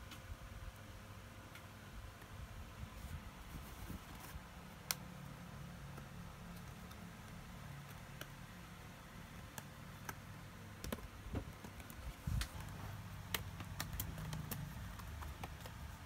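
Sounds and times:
plastic card scraping: 10.8 - 16.0.

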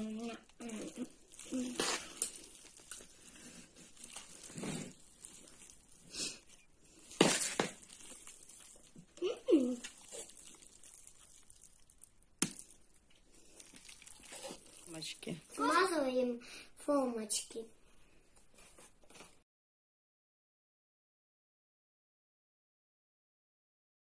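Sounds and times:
dough squelching and slapping: 0.0 - 16.1.

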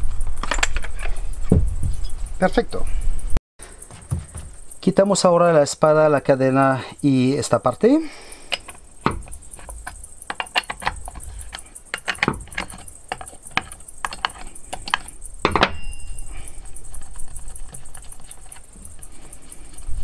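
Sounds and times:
metal clicks and rattles: 0.2 - 1.2, 7.6 - 20.0.

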